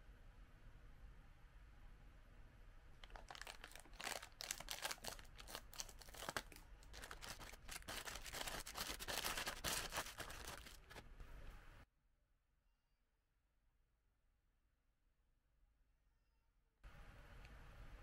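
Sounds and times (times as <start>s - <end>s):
scissors cutting plastic: 3.0s - 11.0s
wrapped biscuits rustling: 3.0s - 11.0s
plastic bag rustling: 3.0s - 11.1s.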